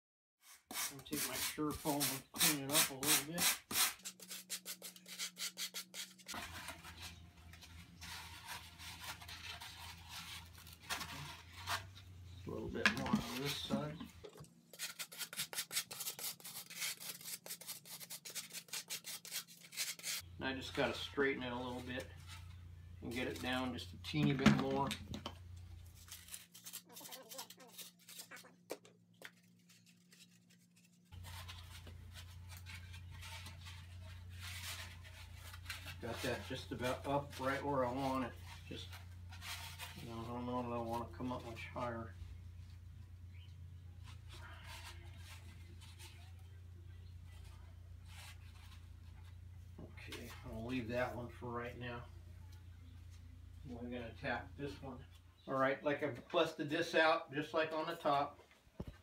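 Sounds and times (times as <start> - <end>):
rasp shaving foam: 0.4 - 12.0, 14.7 - 22.2
faint scratching of foam: 0.5 - 14.0, 14.7 - 23.9, 29.2 - 42.8, 43.8 - 55.1
low steady hum: 20.2 - 26.8.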